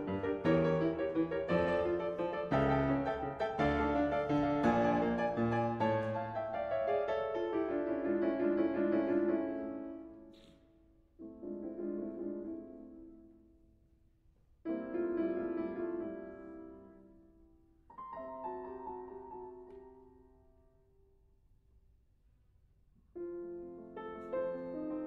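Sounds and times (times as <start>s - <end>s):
slow solo piano chords: 0.0s - 10.2s, 23.2s - 25.0s.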